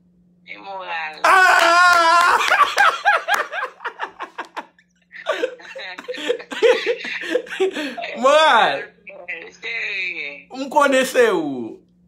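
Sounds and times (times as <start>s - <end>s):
man laughing: 1.3s - 8.5s.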